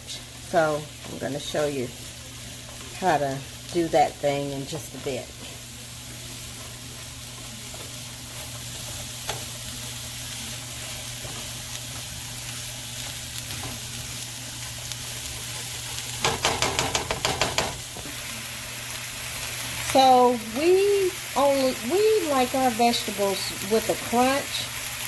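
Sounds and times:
vegetables sizzling in a frying pan: 0.0s - 25.0s.

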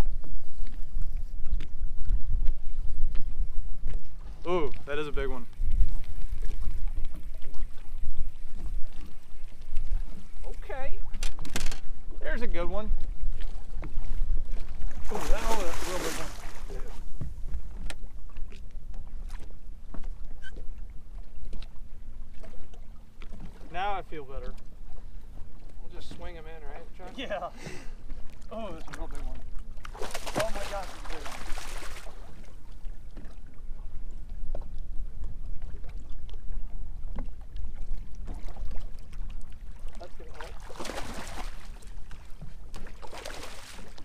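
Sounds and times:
wind rumbling on microphone: 0.0s - 23.7s
water slapping against boat hull: 1.4s - 20.8s, 28.1s - 33.4s, 37.1s - 44.0s
short knocks and splashes: 13.4s - 20.7s, 28.4s - 32.5s, 39.8s - 44.0s.

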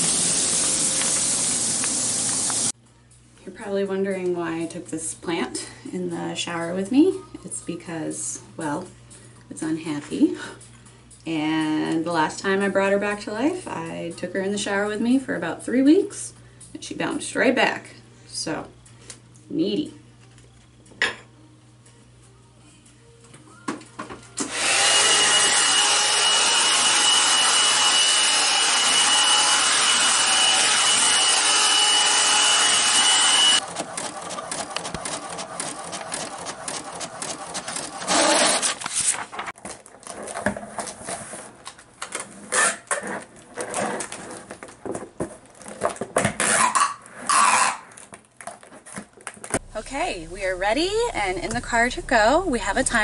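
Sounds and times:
hair dryer running: 0.0s - 2.7s, 24.4s - 33.6s
printer printing: 31.2s - 39.0s.

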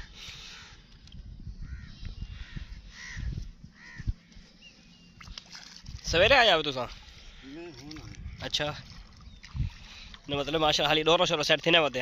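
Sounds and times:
crows cawing: 1.6s - 4.5s, 7.0s - 8.6s.

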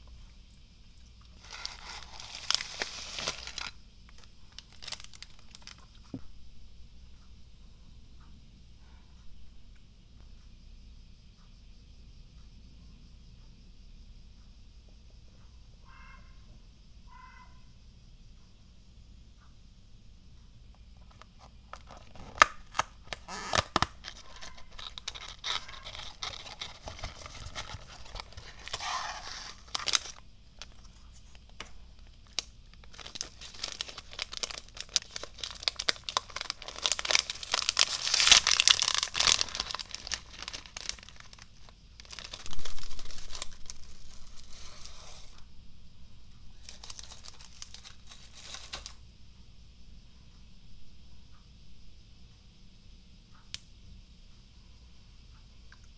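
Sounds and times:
foil packet crinkling: 1.3s - 6.2s, 21.0s - 45.4s, 46.5s - 49.0s
foil packet tearing: 1.4s - 5.9s, 21.2s - 45.3s, 46.6s - 49.0s.

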